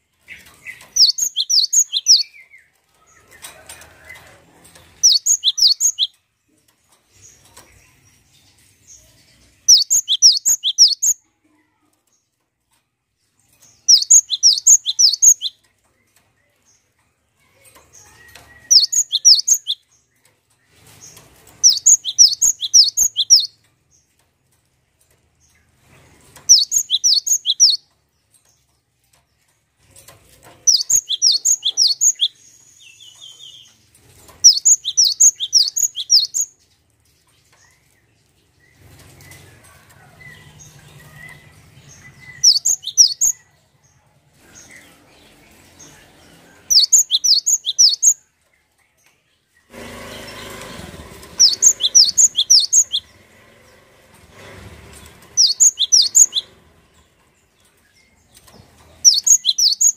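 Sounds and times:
bird singing high whistled notes: 0:09.7 - 0:11.2, 0:13.9 - 0:15.5, 0:18.7 - 0:19.8, 0:21.7 - 0:23.5, 0:30.7 - 0:33.7, 0:34.5 - 0:36.5, 0:42.2 - 0:43.4, 0:46.7 - 0:48.2, 0:51.4 - 0:53.1, 0:55.4 - 0:56.5, 0:59.0 - 0:59.9
fluttering and rustling: 0:14.8 - 0:43.3, 0:48.4 - 0:59.9.

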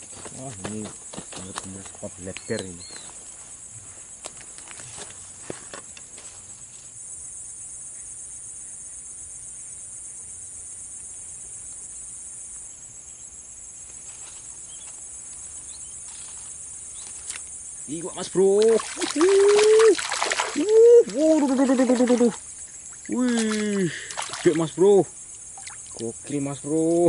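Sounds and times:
insects trilling: 0:00.0 - 0:27.0
louder insect trilling: 0:14.5 - 0:27.0.

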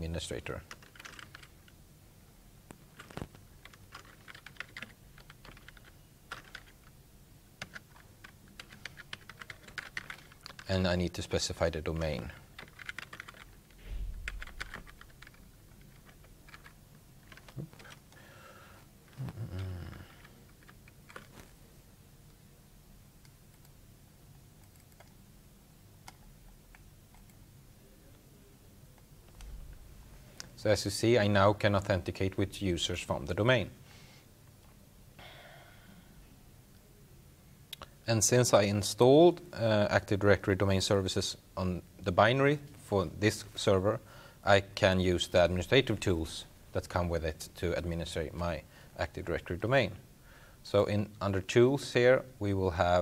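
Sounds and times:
low steady hiss: 0:00.0 - 0:53.0
faint typing on keyboard: 0:00.4 - 0:01.8, 0:02.7 - 0:07.0, 0:07.6 - 0:21.6, 0:23.2 - 0:25.3, 0:26.0 - 0:27.5
keyboard clicks: 0:00.7 - 0:01.5, 0:03.0 - 0:06.7, 0:14.2 - 0:18.0.

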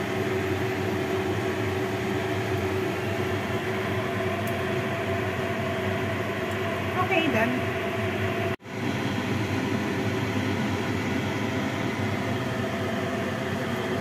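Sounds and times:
mechanical hum: 0:00.0 - 0:14.0.

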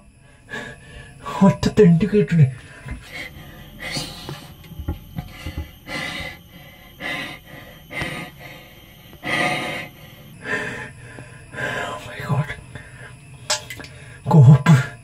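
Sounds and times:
man breathing hard and fast: 0:00.1 - 0:01.3, 0:02.6 - 0:12.0.

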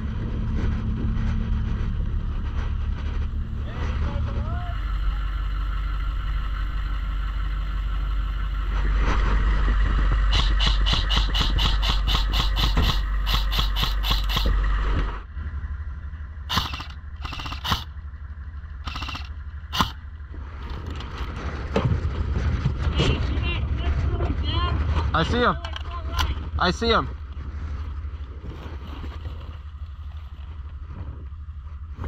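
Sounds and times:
engine rumbling: 0:00.0 - 0:32.0
fast even clatter: 0:08.8 - 0:15.1, 0:16.5 - 0:17.9, 0:18.8 - 0:20.0
sharp clicks: 0:10.3 - 0:14.6, 0:16.5 - 0:18.0, 0:18.8 - 0:20.0.

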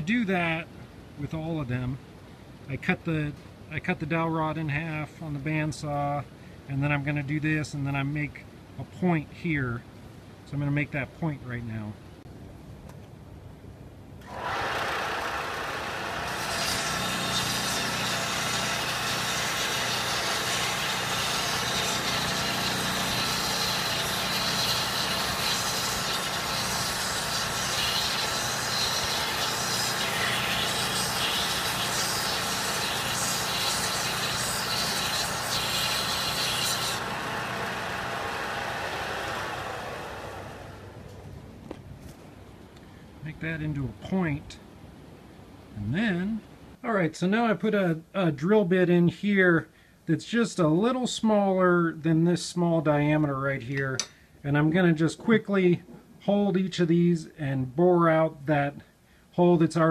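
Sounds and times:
sander motor humming: 0:14.2 - 0:41.2
wood sanding hiss: 0:14.3 - 0:40.9.

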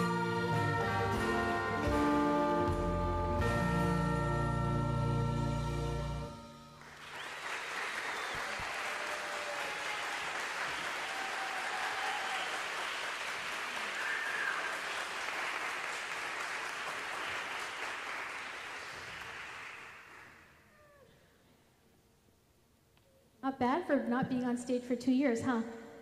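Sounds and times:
audience applauding: 0:06.8 - 0:20.6.

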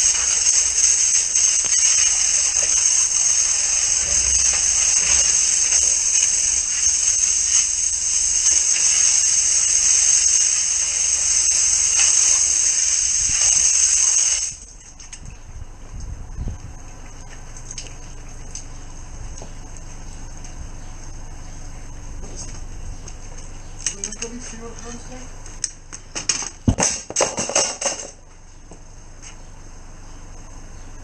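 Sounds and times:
drain jetter water hissing: 0:00.0 - 0:14.8.

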